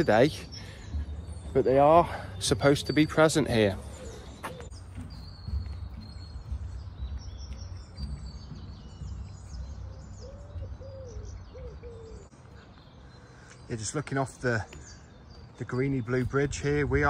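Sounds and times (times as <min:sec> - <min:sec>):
steady low rumble: 0:00.0 - 0:11.6
birds chirping: 0:00.0 - 0:17.0
low bird calls: 0:00.0 - 0:17.0.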